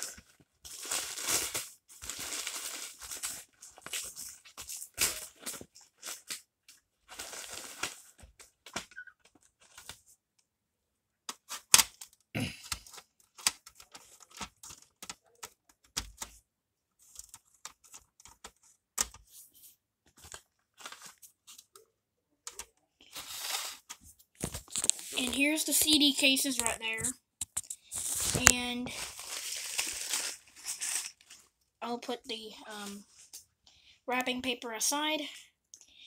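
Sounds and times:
wrapping paper tearing: 0:00.0 - 0:06.4, 0:07.1 - 0:08.2, 0:23.1 - 0:26.0, 0:27.7 - 0:31.4.

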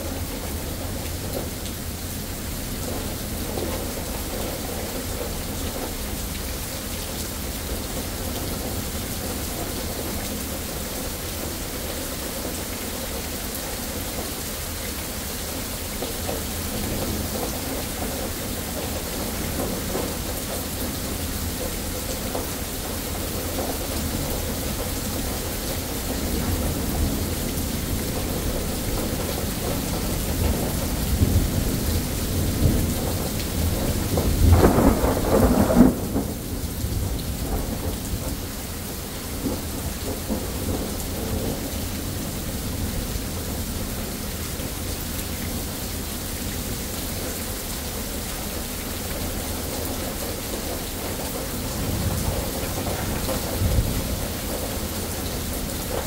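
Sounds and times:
steady rain: 0:00.0 - 0:56.0
rolling thunder: 0:26.0 - 0:38.5.

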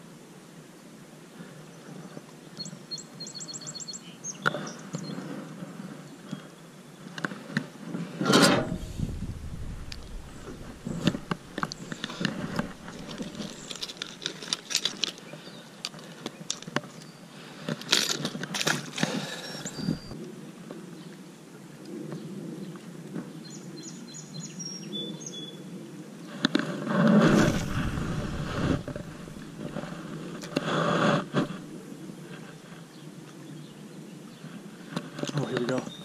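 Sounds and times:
bird trill: 0:19.3 - 0:20.2
fish splashing into water: 0:27.2 - 0:30.2.

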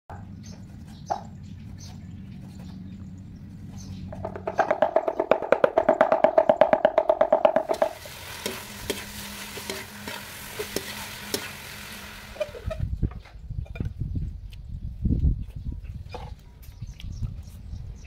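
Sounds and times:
cleaver chopping on wooden board: 0:04.1 - 0:08.0
meat sizzling in a wok: 0:07.7 - 0:12.7.

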